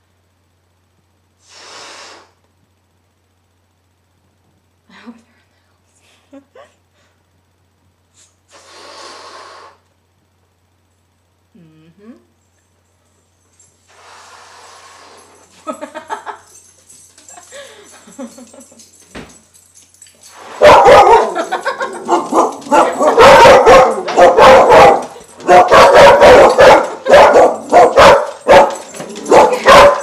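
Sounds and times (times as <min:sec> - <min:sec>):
dog barking rapidly: 0:20.6 - 0:30.0.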